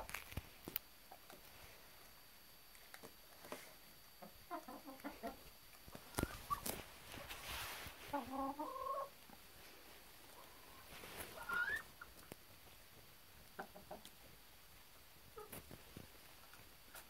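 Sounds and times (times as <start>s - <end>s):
hens clucking: 4.1s - 9.5s, 10.2s - 12.4s, 13.4s - 14.4s, 15.3s - 15.8s.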